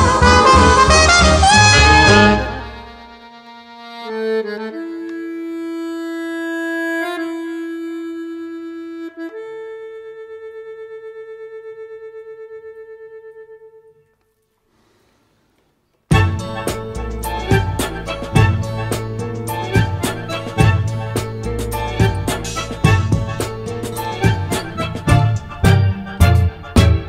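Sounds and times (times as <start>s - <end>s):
jazz music: 0.0s - 9.4s, 16.1s - 27.0s
free-reed instrument long notes: 0.0s - 14.5s, 16.1s - 27.0s.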